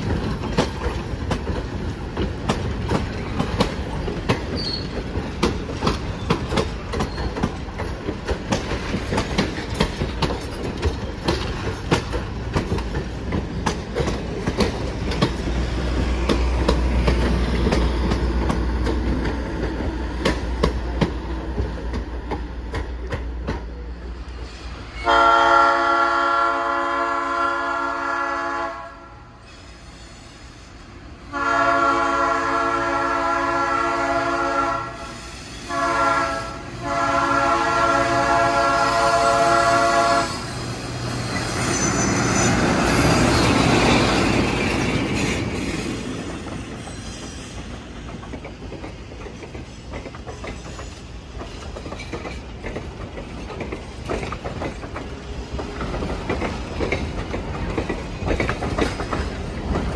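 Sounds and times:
wheels clicking over rail joints: 0.0s - 24.4s, 42.5s - 59.9s
locomotive horn blasts: 25.0s - 29.2s, 31.3s - 35.1s, 35.7s - 40.5s.

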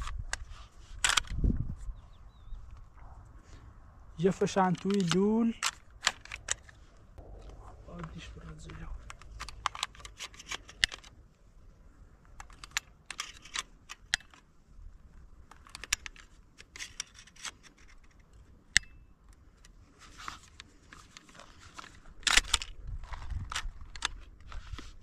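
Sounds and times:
shotgun shells clicking into magazine: 4.7s - 6.7s, 9.0s - 11.1s, 12.4s - 14.4s, 15.5s - 19.0s, 21.8s - 24.3s.

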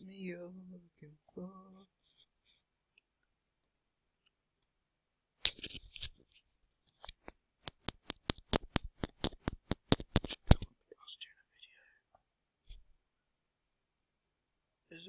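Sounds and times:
sharp taps: 7.0s - 10.7s.

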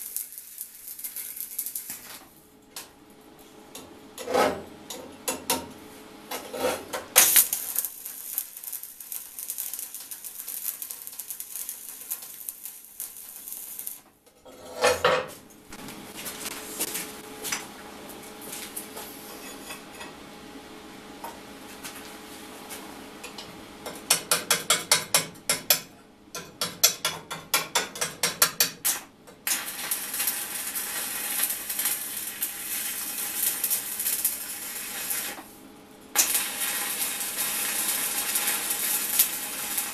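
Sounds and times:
arc welding crackling hiss: 0.0s - 2.4s, 6.4s - 14.2s, 28.8s - 39.9s.

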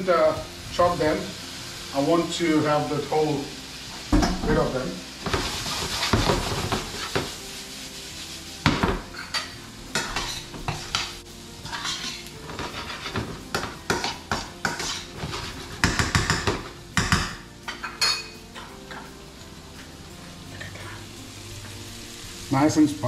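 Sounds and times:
potatoes frying sizzle: 0.0s - 23.0s
metal spatula scraping frying pan: 5.3s - 7.4s, 9.0s - 16.5s.

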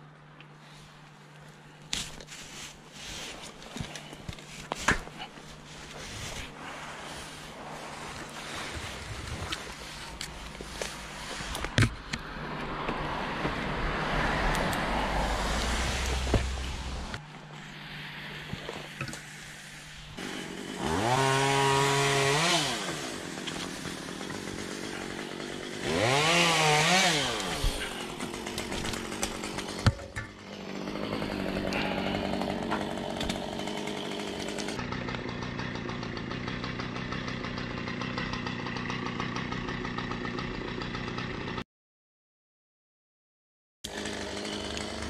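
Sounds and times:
chainsaw revving: 5.1s - 11.6s, 14.0s - 17.2s, 17.9s - 41.6s, 43.9s - 45.0s.

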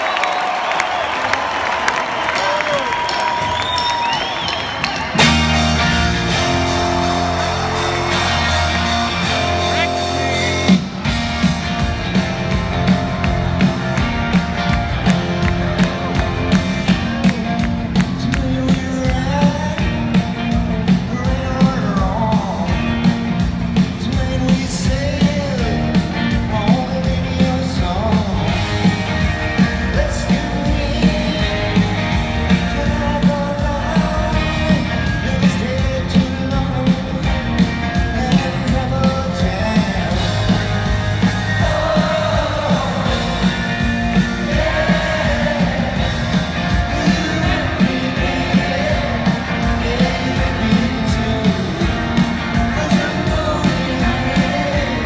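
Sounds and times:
electric guitars: 2.2s - 55.0s
live rock band playing: 2.2s - 55.0s
drum beat: 4.8s - 55.0s
person singing lead vocal: 17.2s - 20.2s, 20.8s - 23.1s, 23.8s - 29.0s, 29.6s - 40.6s, 41.2s - 55.0s.

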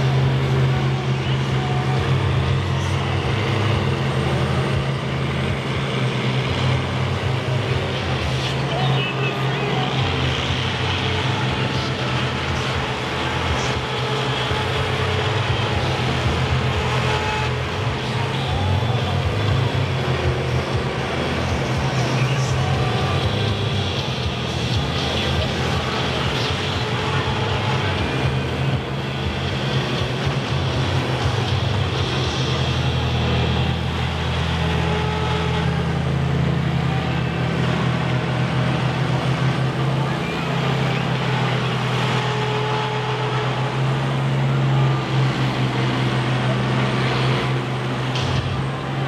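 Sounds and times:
combine harvester engines humming: 0.0s - 49.0s.

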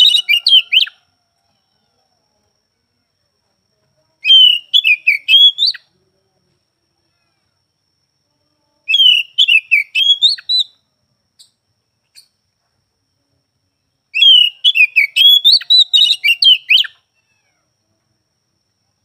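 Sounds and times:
bird singing whistled notes: 0.0s - 1.0s, 4.2s - 5.9s, 8.9s - 10.8s, 14.1s - 17.0s.

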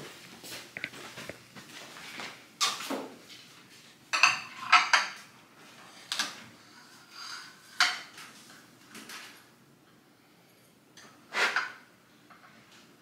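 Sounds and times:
plates and cutlery clinking: 4.1s - 5.3s, 6.7s - 8.2s.

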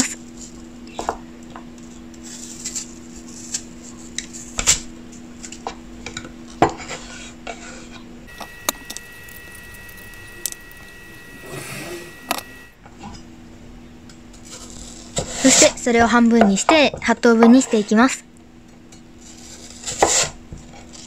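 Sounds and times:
faint high steady tone: 8.3s - 12.8s
low hum: 8.3s - 12.8s.

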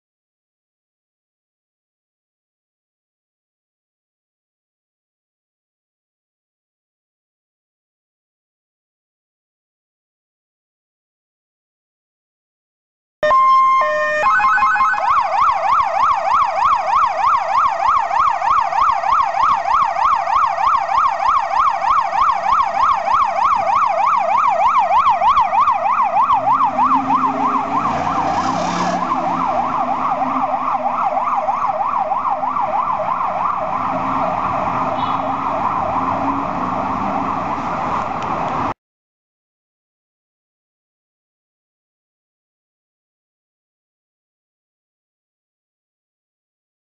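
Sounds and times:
fire truck siren yelping: 13.2s - 38.7s
engine and traffic noise: 13.2s - 38.8s.

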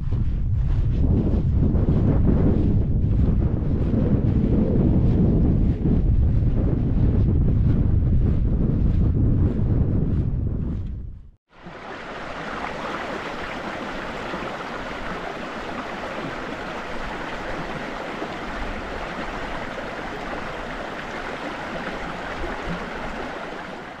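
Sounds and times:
stream water rushing: 11.5s - 24.0s.

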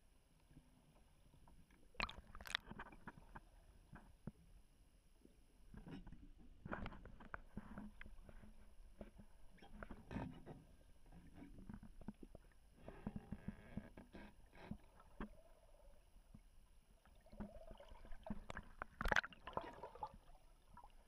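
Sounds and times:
faint underwater water movement: 0.2s - 21.0s
underwater clicks and knocks: 2.0s - 4.4s, 5.7s - 15.4s, 17.4s - 19.3s.

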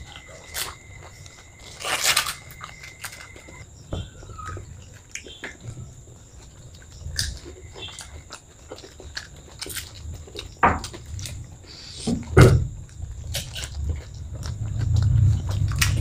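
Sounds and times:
crisp shells crunching: 0.0s - 3.6s, 6.5s - 10.5s
wet chewing: 0.0s - 16.0s.

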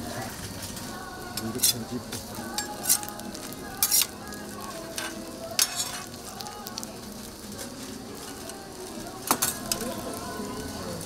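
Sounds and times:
food sizzling on a griddle: 0.0s - 11.0s.

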